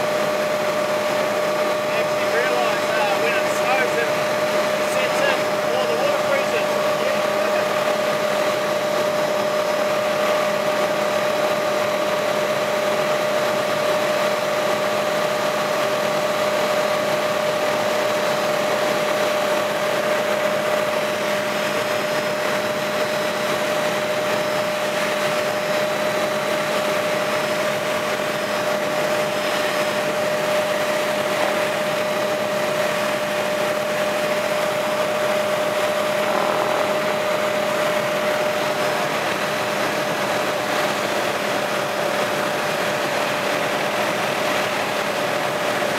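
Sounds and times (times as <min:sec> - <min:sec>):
constant whine: 0:00.0 - 0:45.9
helicopter engine and rotor drone: 0:00.0 - 0:45.9.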